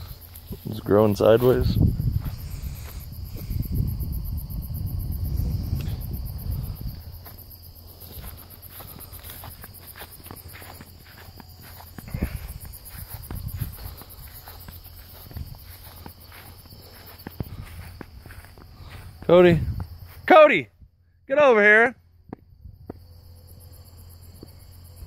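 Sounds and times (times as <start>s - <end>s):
footsteps through grass: 0.0s - 3.6s, 5.3s - 20.3s
insects trilling: 0.0s - 25.0s.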